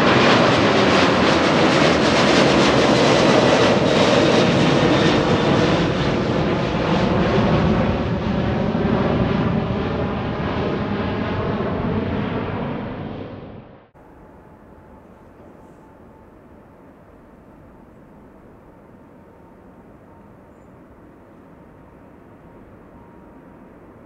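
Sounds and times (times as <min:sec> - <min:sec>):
airliner engines passing: 0:00.0 - 0:24.0
faint jet engine whine: 0:00.0 - 0:24.0.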